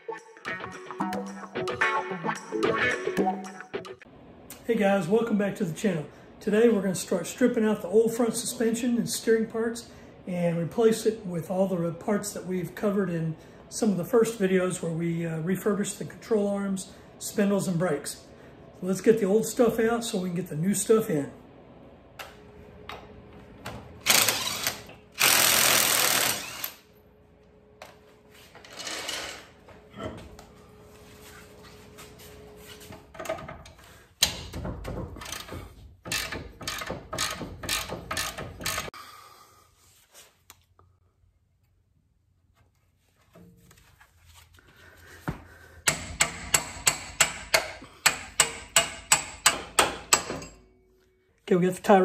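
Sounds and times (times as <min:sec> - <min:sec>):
impact wrench hammering: 0:24.0 - 0:26.8, 0:34.2 - 0:38.9, 0:45.8 - 0:50.7.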